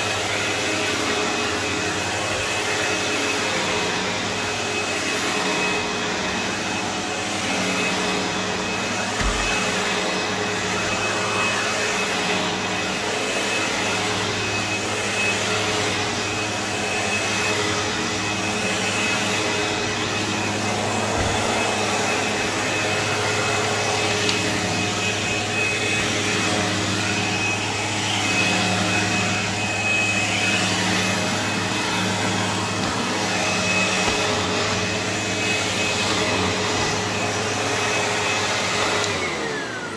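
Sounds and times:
vacuum cleaner running on carpet: 0:00.0 - 0:39.9.

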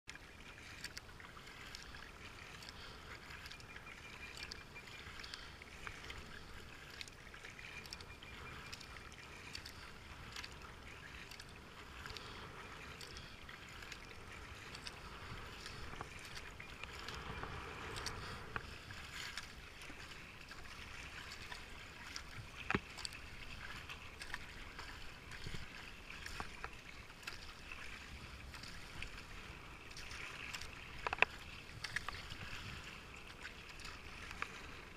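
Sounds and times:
paddle strokes in water: 0:00.0 - 0:34.9
water dripping: 0:00.1 - 0:27.5
wind on microphone: 0:09.8 - 0:20.0.

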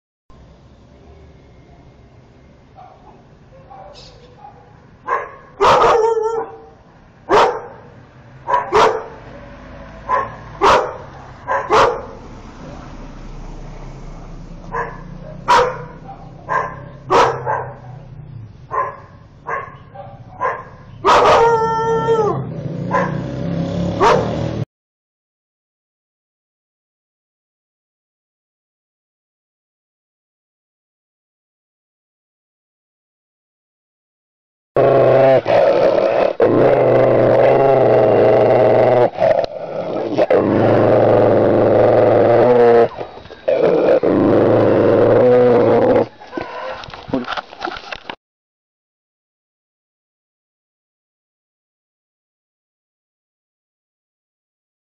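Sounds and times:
dog barking: 0:02.8 - 0:09.3, 0:10.0 - 0:12.2, 0:14.7 - 0:21.6, 0:22.9 - 0:23.3, 0:24.0 - 0:24.4, 0:46.2 - 0:46.9
dog drawn-out cry: 0:03.7 - 0:06.7, 0:18.8 - 0:23.3, 0:24.0 - 0:24.4, 0:34.8 - 0:46.9
puppy growling: 0:34.8 - 0:47.4.

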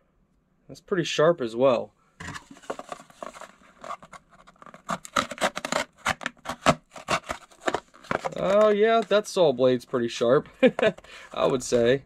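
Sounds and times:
cardboard scratching: 0:02.2 - 0:09.2
saw rasping through cardboard: 0:04.8 - 0:08.2.

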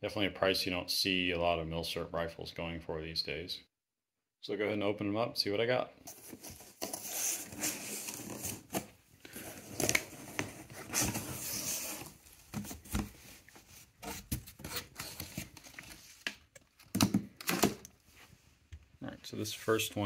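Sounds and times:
cardboard and paper handling: 0:06.1 - 0:17.0.

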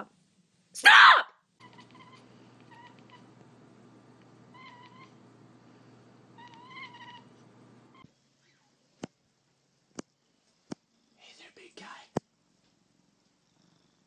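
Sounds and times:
cat chirping meows: 0:01.6 - 0:03.3, 0:04.5 - 0:05.2, 0:06.4 - 0:07.3.

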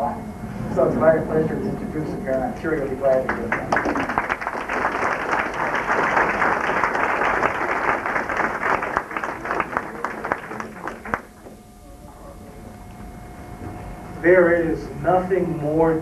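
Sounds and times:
audience applauding: 0:03.2 - 0:11.5.

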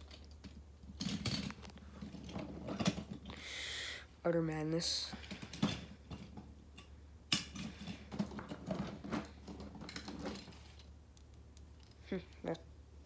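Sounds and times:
toy trucks clattering: 0:00.0 - 0:03.3.

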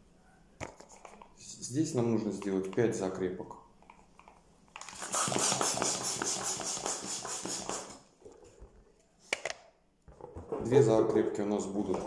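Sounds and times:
hand pump air hissing: 0:04.9 - 0:08.0.

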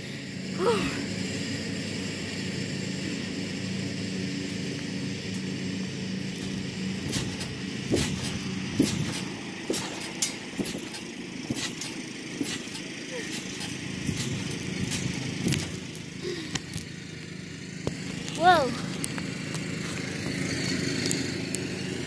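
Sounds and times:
low motor hum: 0:00.0 - 0:22.0
thumps on trampoline mat: 0:07.1 - 0:15.0.

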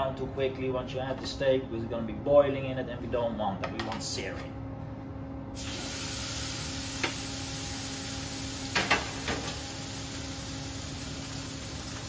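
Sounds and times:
background hum: 0:00.0 - 0:12.0
steak sizzling in a pan: 0:05.6 - 0:12.0.

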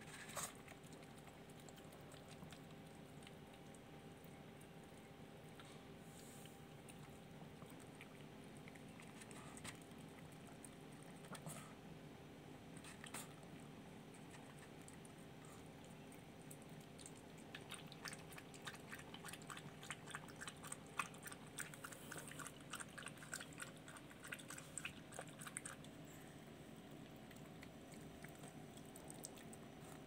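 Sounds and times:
puppy eating with wet clicks: 0:00.0 - 0:30.0.

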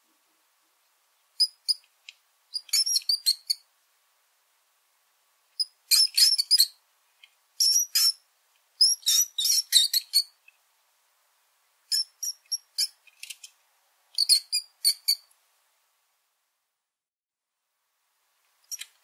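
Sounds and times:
rodent squeaking: 0:01.4 - 0:01.9, 0:02.5 - 0:03.6, 0:05.6 - 0:06.8, 0:07.6 - 0:08.2, 0:08.8 - 0:10.4, 0:11.9 - 0:13.5, 0:14.2 - 0:15.3, 0:18.7 - 0:19.0.

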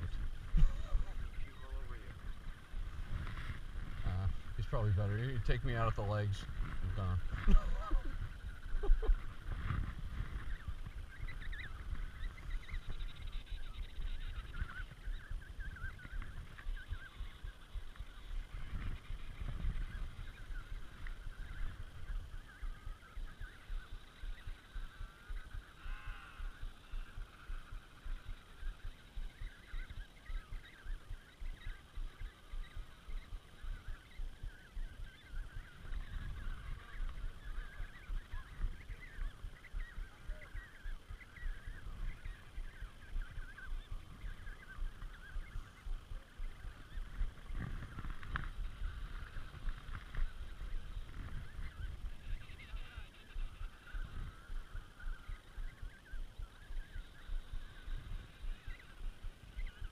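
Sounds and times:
penguins trumpeting calls: 0:25.8 - 0:27.7.

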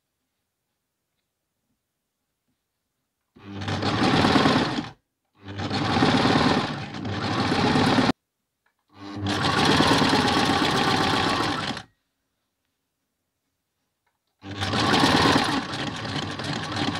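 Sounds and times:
sewing machine stitching: 0:03.4 - 0:08.2, 0:08.9 - 0:11.9, 0:14.4 - 0:16.9.

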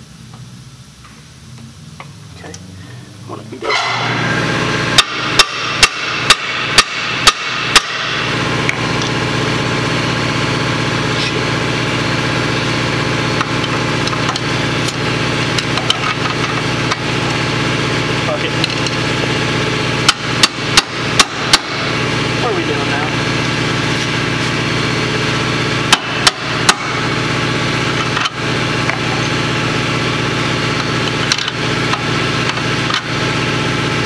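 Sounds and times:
steady machine hum: 0:00.0 - 0:34.0.

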